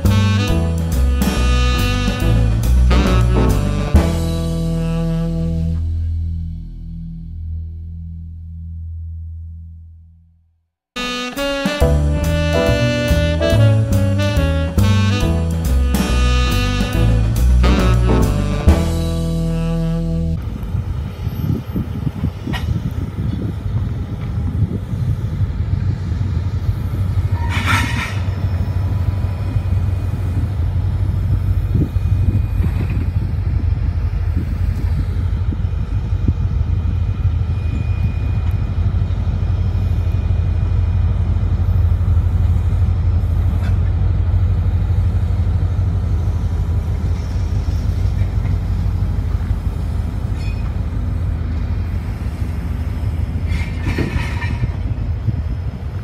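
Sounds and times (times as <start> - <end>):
train wheels rumbling on rail: 0.0 - 6.3, 11.0 - 56.0
wind on microphone: 20.4 - 38.4, 50.9 - 56.0.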